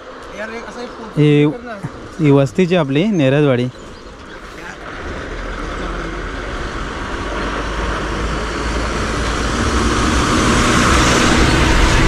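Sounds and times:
bus diesel engine rumble: 0.0s - 12.0s
road noise: 0.0s - 12.0s.

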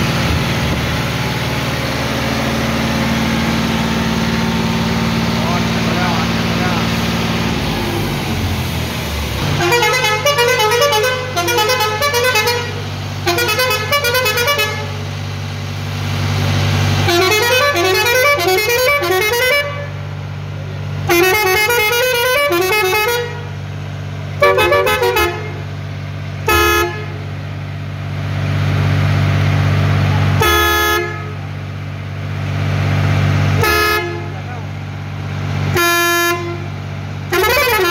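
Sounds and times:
tractor engine idling: 0.0s - 37.9s
musical air horn playing tunes: 9.5s - 15.0s, 17.0s - 20.0s, 21.1s - 23.5s, 24.4s - 25.6s, 26.5s - 27.2s, 30.4s - 31.4s, 33.6s - 34.3s, 35.8s - 36.7s, 37.3s - 37.9s
short air horn blasts: 9.5s - 15.0s, 17.0s - 20.0s, 21.1s - 23.5s, 24.4s - 25.7s, 26.4s - 27.2s, 30.4s - 31.5s, 33.6s - 34.5s, 35.7s - 36.7s, 37.3s - 37.9s.

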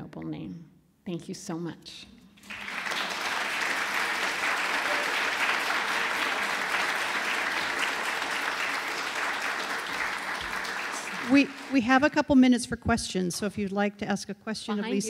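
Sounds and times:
audience applauding: 2.4s - 12.1s.

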